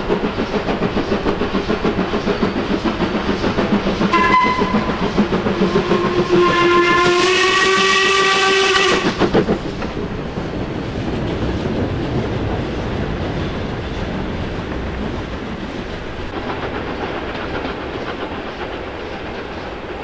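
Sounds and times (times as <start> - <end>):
train rumbling past: 0.0 - 20.0
steam locomotive whistle: 4.1 - 9.2.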